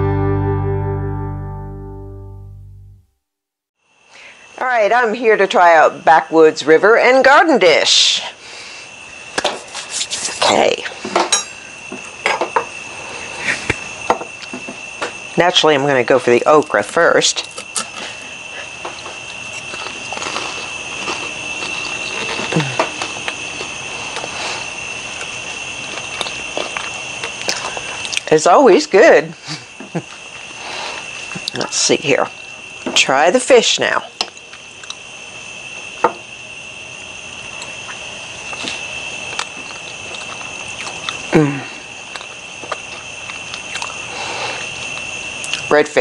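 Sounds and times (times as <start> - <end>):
high insect trill: 3.8 - 46.0
quiet chewing: 17.4 - 28.3, 34.2 - 35.0, 37.6 - 41.3, 42.0 - 45.6.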